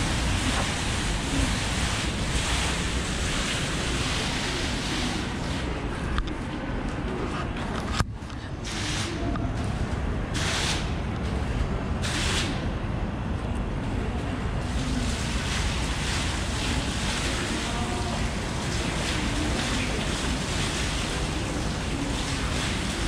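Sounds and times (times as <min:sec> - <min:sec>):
falling water splashing hiss: 0:00.0 - 0:05.7, 0:14.7 - 0:23.0
low steady rumble: 0:00.0 - 0:23.0.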